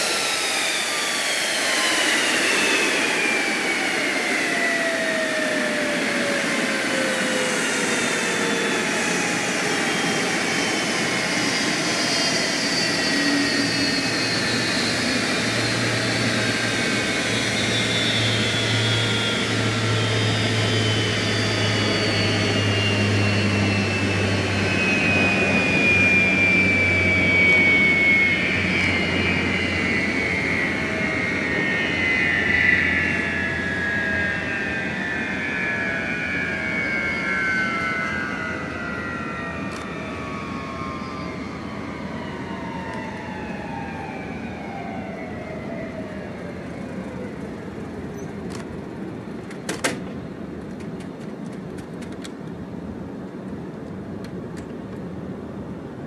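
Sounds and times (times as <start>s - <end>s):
jet engine winding down: 0.0s - 56.0s.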